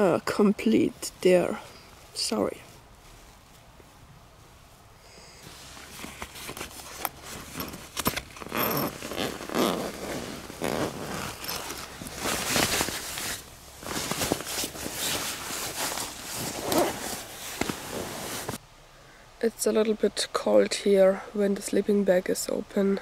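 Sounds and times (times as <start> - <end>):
sleeping bag zipper pulled open: 5.4 - 18.6.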